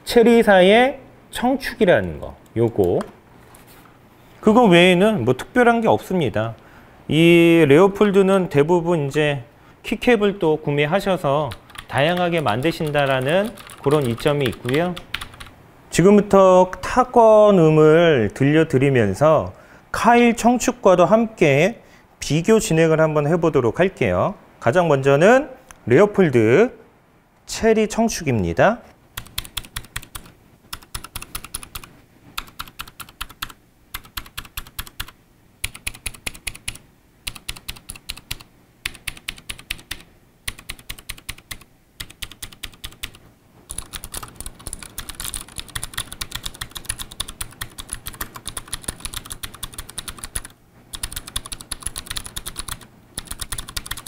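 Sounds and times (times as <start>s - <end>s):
mechanical keyboard typing: 11.5s - 15.5s, 29.2s - 54.0s.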